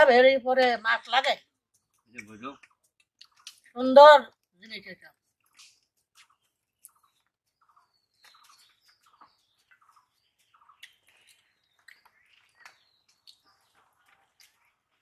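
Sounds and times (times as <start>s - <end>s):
faint bird chirps: 6.2s - 14.8s.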